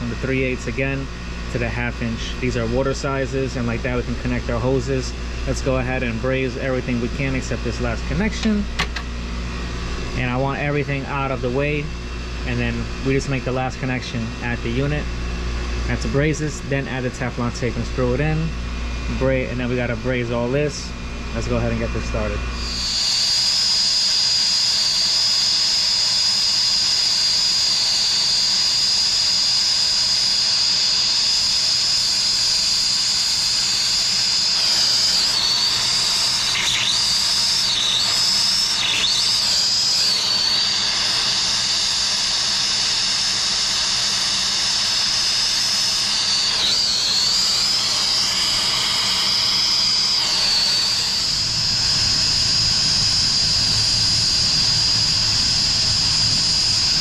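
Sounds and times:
brazing torch hissing and whistling: 22.6 - 57.0.

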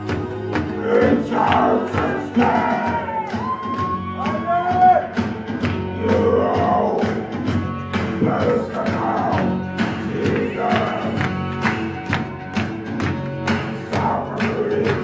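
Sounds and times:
person singing: 0.0 - 3.6, 5.8 - 7.5, 8.1 - 11.4, 13.8 - 15.0
dance music with steady beat: 0.0 - 15.0.

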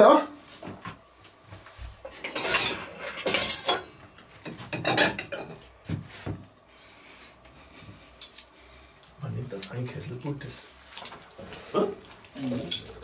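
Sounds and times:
plates and cutlery clattering: 2.1 - 5.6.

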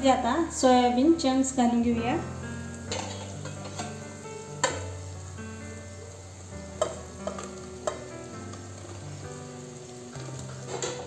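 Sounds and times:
food sizzling in hot oil: 0.0 - 11.0
metal clinking against pot: 2.9 - 4.0, 10.7 - 11.0.

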